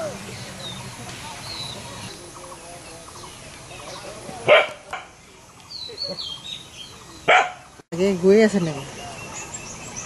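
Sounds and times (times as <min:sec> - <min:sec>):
dog barking: 0:04.4 - 0:04.9, 0:07.3 - 0:07.6.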